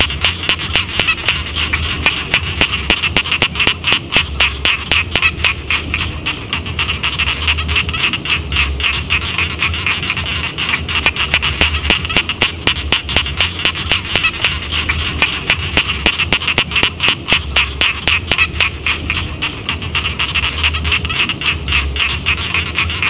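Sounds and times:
frogs croaking in chorus: 0.0s - 23.0s.

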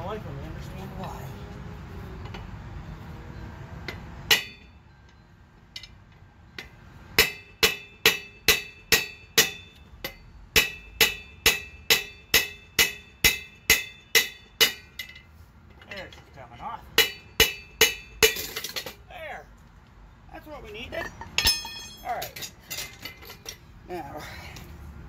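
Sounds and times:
ringing metal-on-metal blows: 3.8s - 19.0s, 21.0s - 23.7s.

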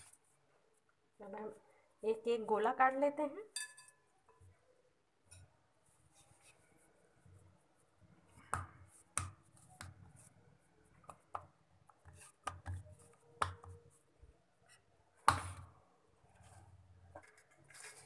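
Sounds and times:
soft dough handling noise: 3.9s - 18.0s
dough taps and knocks: 8.4s - 10.1s, 10.9s - 13.9s.

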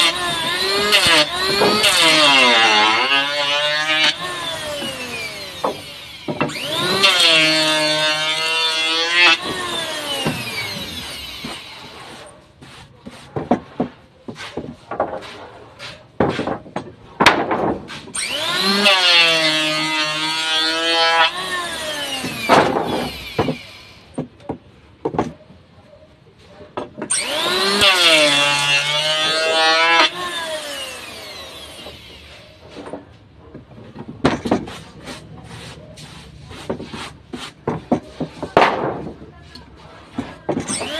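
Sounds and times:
electric hand planer whining: 0.0s - 12.2s, 18.2s - 24.1s, 27.1s - 32.9s
wood knocking and clattering: 13.0s - 15.4s, 16.2s - 18.1s, 22.2s - 25.6s, 32.7s - 35.2s, 36.6s - 40.9s.

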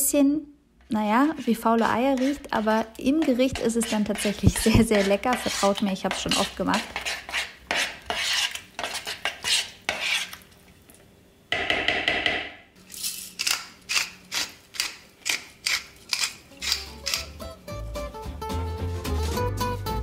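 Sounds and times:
metal spoon scraping ceramic bowl: 2.1s - 10.4s.

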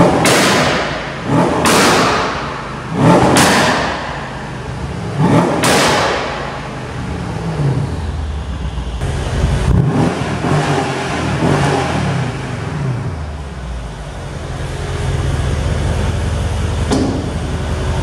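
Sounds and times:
sharp exhaust bang: 0.0s - 7.0s, 16.8s - 17.6s
car engine revving: 0.0s - 18.0s.

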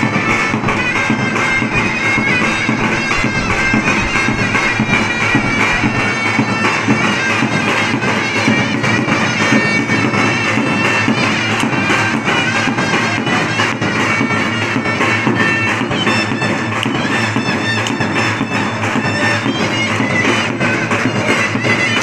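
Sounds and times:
big drum beat: 0.0s - 17.4s
shrill reed pipe melody: 0.0s - 22.0s.

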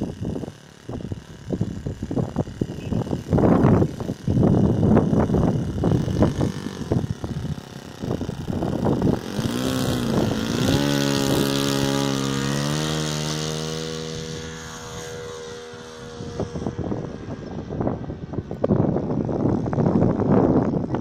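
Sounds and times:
model airplane engine revving: 0.0s - 21.0s
wind buffeting microphone: 0.0s - 21.0s.

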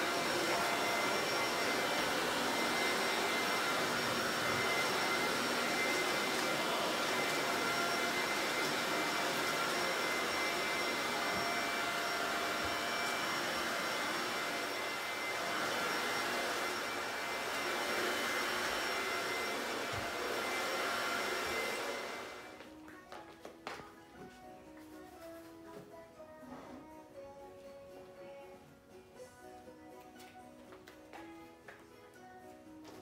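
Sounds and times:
vacuum cleaner running: 0.0s - 22.8s.

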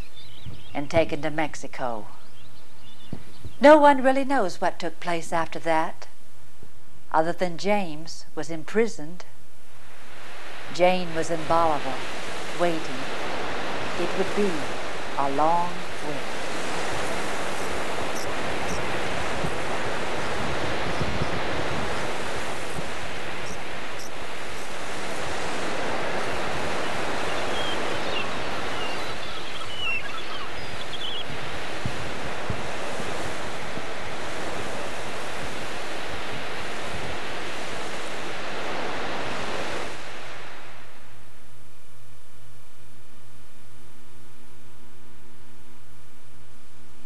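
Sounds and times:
ocean surf washing onto beach: 9.8s - 41.2s.

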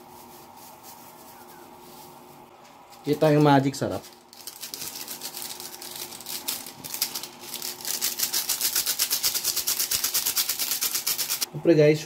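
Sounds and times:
seasoning sachet rattling: 2.9s - 11.5s.

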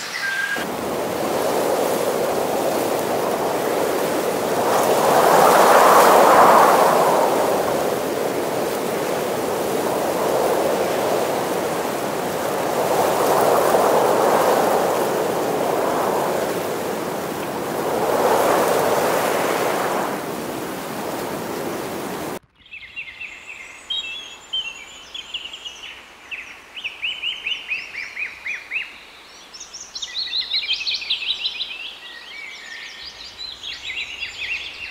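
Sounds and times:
birds chirping: 0.0s - 0.6s
water lapping on shore: 0.0s - 22.4s.

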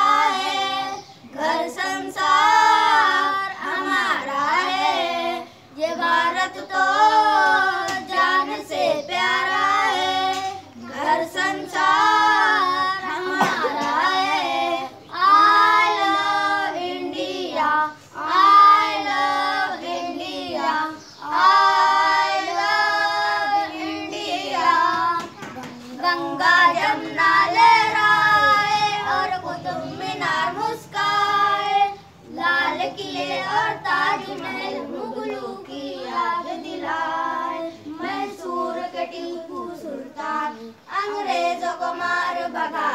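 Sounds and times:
children singing: 0.0s - 42.9s.

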